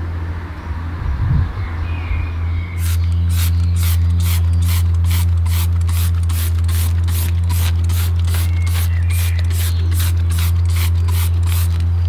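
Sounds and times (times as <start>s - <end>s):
steady low hum: 0.0s - 12.0s
spray bottle trigger hissing: 2.8s - 11.9s.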